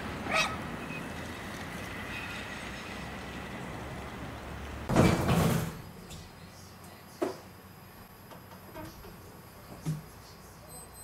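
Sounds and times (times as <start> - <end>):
faint steady whine: 5.8 - 11.0.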